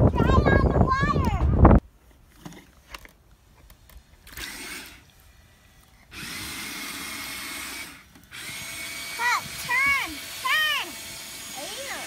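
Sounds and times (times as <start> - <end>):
electric motors whirring: 3.6 - 12.0
paddle wheels churning water: 9.1 - 12.0.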